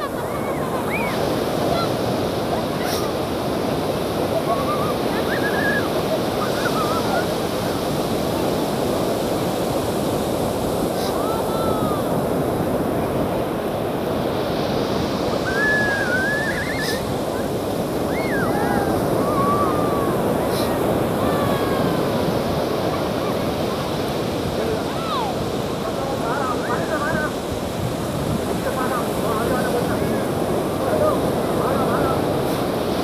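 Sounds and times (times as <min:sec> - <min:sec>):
ocean surf breaking on beach: 0:00.0 - 0:33.0.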